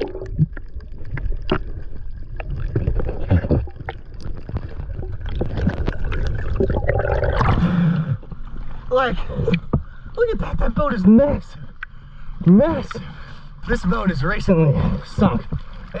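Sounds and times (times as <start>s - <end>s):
underwater clicks: 0.0s - 7.6s
bubbling: 0.0s - 8.3s
underwater rumble of water: 0.0s - 16.0s.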